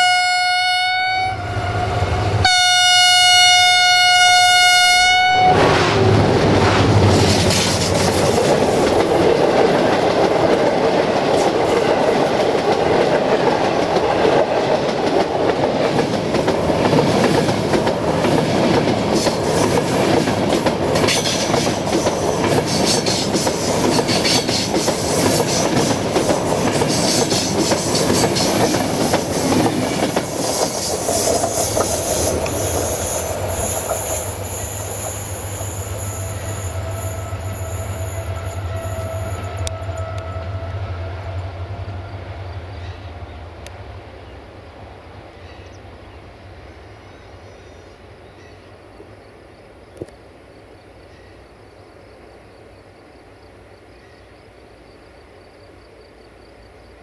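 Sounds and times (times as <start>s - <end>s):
train rumble: 0.0s - 47.8s
train wheels clattering over rail joints: 6.4s - 35.2s.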